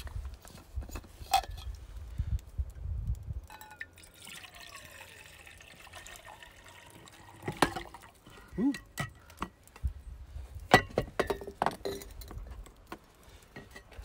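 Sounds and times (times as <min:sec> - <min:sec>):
water trickling into a pot: 0:03.0 - 0:09.4.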